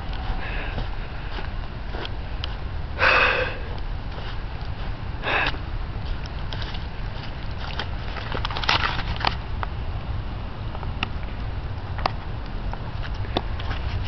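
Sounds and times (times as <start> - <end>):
footsteps crunching in snow: 0.0 - 9.4
small crunches and crackles: 0.0 - 9.7
low rumble: 0.0 - 14.0
person sniffing: 3.0 - 3.8, 5.2 - 5.6.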